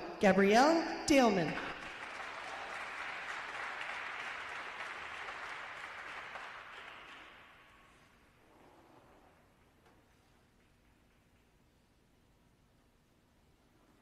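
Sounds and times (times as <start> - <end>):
audience applauding: 1.8 - 8.0.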